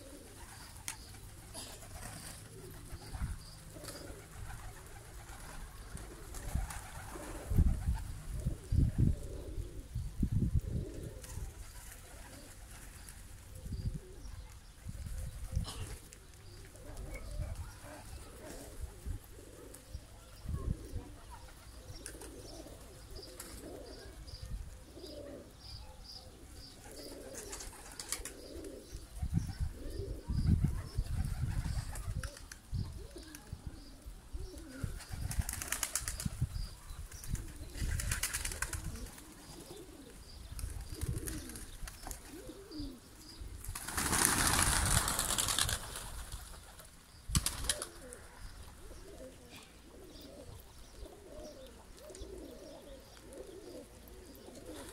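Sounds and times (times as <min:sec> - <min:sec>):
pigeons cooing: 0:00.0 - 0:54.9
pigeon wings flapping: 0:03.8 - 0:08.0, 0:27.0 - 0:28.4, 0:35.0 - 0:36.4, 0:37.3 - 0:39.4, 0:43.7 - 0:48.1.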